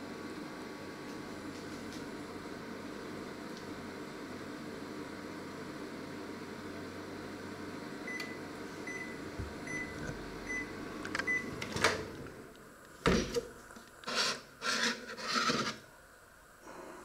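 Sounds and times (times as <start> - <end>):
microwave oven humming: 0.0 - 14.6
microwave beeps: 8.0 - 12.0.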